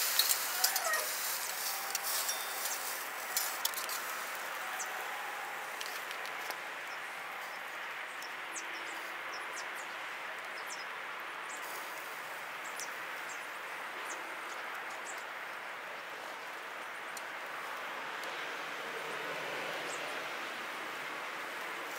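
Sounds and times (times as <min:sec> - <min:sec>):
meat sizzling on a grill: 0:00.0 - 0:05.7.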